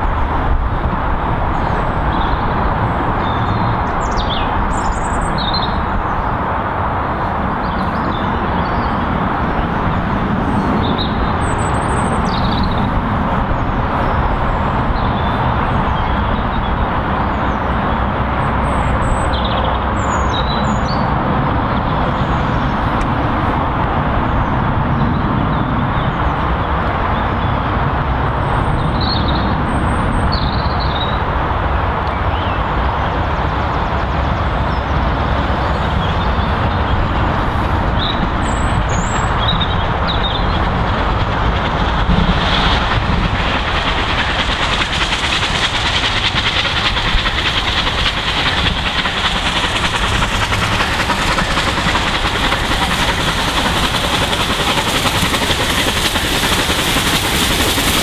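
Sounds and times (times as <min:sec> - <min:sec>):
steam locomotive exhaust beats: 0:00.0 - 0:58.0
train rumbling: 0:00.0 - 0:58.0
birds chirping: 0:07.6 - 0:13.0.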